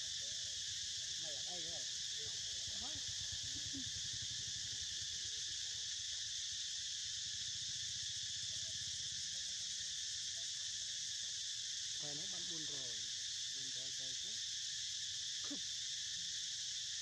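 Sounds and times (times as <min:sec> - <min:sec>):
insect chorus drone: 0:00.0 - 0:17.0.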